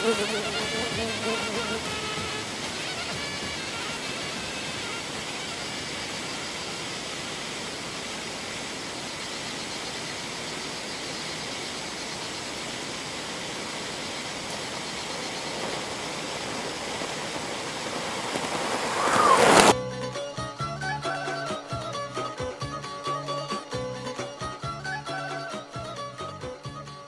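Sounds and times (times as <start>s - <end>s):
motorcycle approaching: 0.0s - 6.6s, 13.1s - 19.8s
steady hiss: 0.0s - 19.8s.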